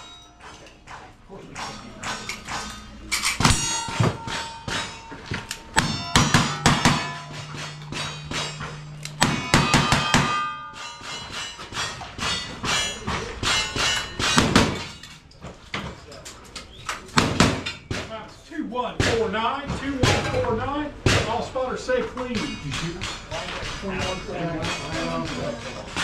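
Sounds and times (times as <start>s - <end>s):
steel targets ringing: 0.0s - 15.3s, 20.0s - 26.0s.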